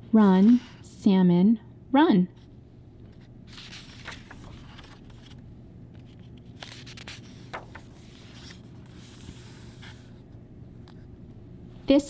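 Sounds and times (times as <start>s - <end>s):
faint steady hum: 0.0s - 12.0s
book pages turning: 3.0s - 10.2s.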